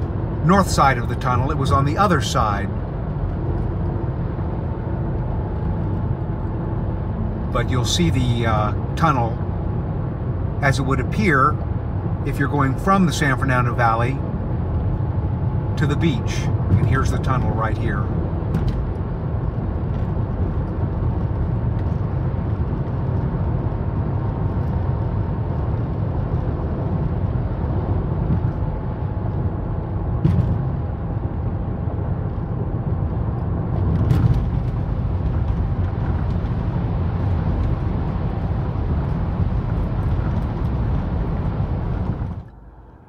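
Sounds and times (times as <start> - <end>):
car tyres and engine rumble: 0.0 - 43.0.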